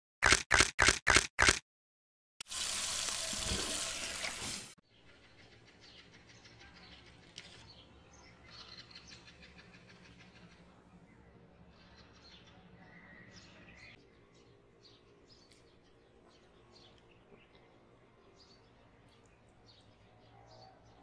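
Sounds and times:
quick pops: 0.2 - 1.6
small birds chirping: 4.9 - 21.0.

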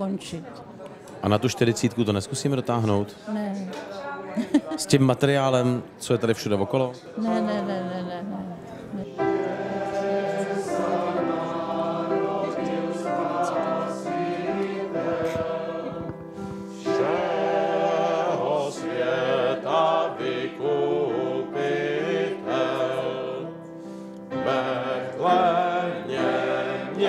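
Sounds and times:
men singing in chorus: 9.0 - 23.7, 24.4 - 27.0.

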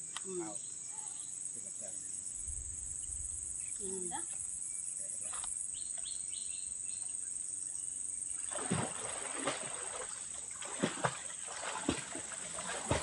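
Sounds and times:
high drone of insects: 0.0 - 13.0
water splashing and sloshing: 8.4 - 13.0.

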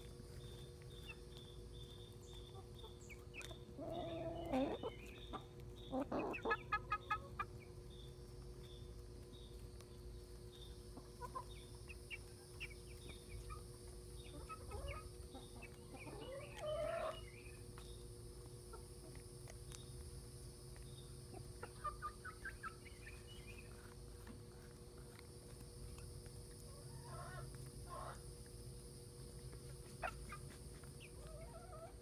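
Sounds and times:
hens clucking: 0.0 - 32.0.

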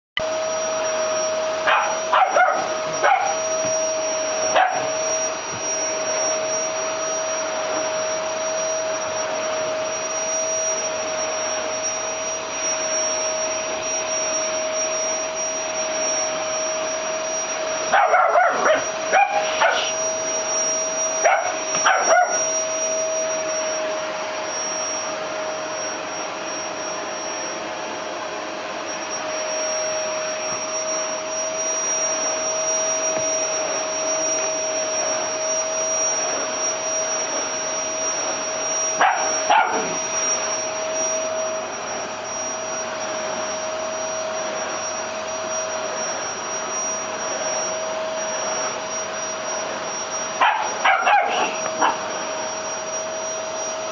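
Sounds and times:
vacuum cleaner whining: 0.2 - 53.9
puppy barking: 1.6 - 3.4, 4.5 - 5.0, 17.9 - 20.0, 21.2 - 22.5, 39.0 - 40.0, 50.4 - 52.0.

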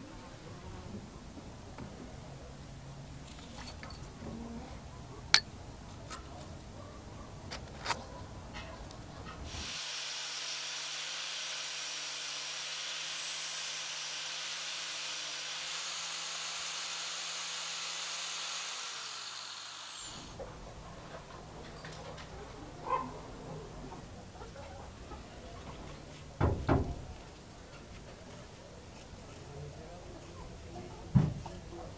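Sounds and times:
wooden block grinding hiss: 9.5 - 20.4
sanding disc motor whine: 9.6 - 20.4.

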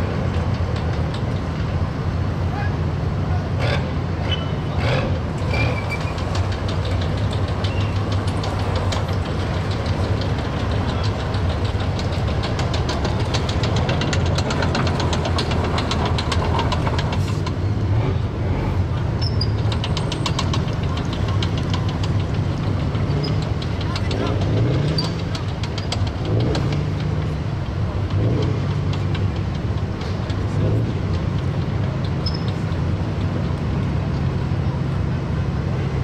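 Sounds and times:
low engine rumble: 0.0 - 36.0
steel tracks clattering: 5.2 - 17.8, 19.0 - 34.2.

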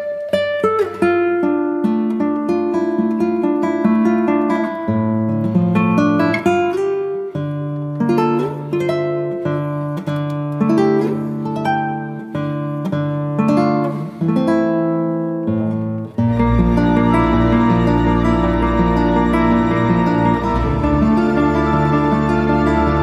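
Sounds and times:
acoustic guitar melody: 0.0 - 23.0.

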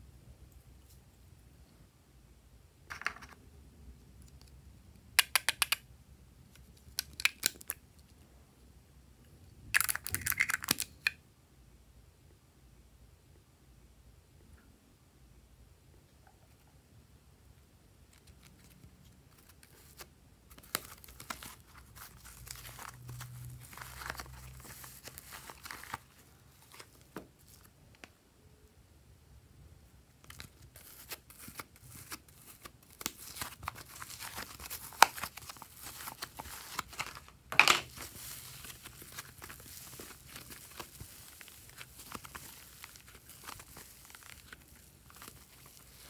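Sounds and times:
slime crackling and tearing: 37.9 - 46.0.

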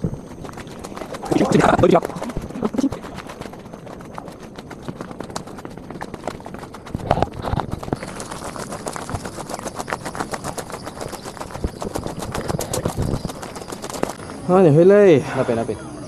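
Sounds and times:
footsteps on gravel: 0.0 - 14.3.

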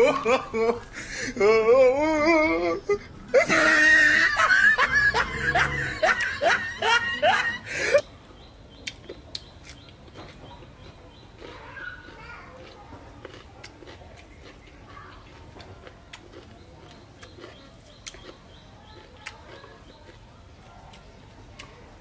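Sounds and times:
person laughing and whooping: 0.0 - 8.0.

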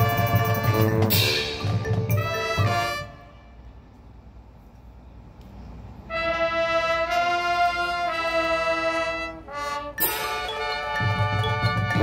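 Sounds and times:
low brass layer: 0.0 - 3.8, 6.0 - 12.0
marching band brass chords: 0.0 - 3.8, 6.1 - 12.0.

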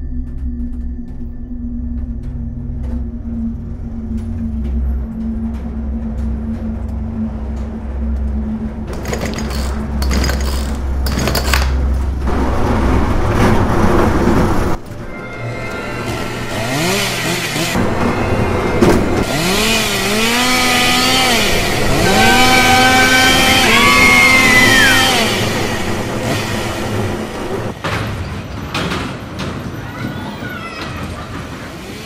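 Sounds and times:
low drone: 0.0 - 27.8
noisy swells: 11.8 - 27.8.

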